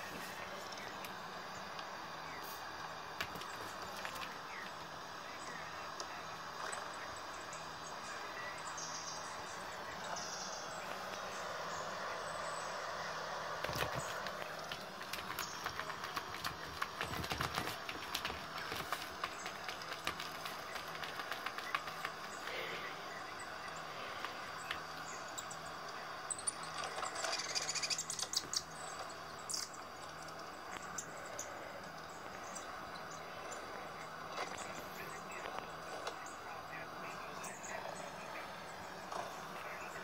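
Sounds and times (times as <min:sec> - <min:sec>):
birds chirping through small speaker: 0:00.0 - 0:40.0
paw tapping tablet screen: 0:03.2 - 0:04.7, 0:13.6 - 0:25.1.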